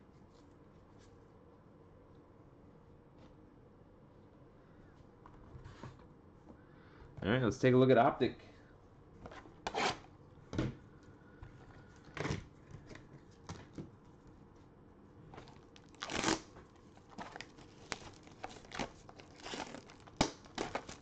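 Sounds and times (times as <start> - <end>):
plastic shrink wrap tearing and crinkling: 15.4 - 21.0.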